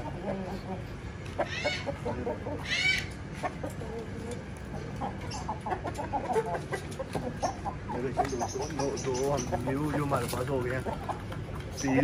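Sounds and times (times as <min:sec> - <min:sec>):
chickens clucking: 0:00.0 - 0:12.0
high-pitched chicken call: 0:01.4 - 0:02.0, 0:02.6 - 0:03.2.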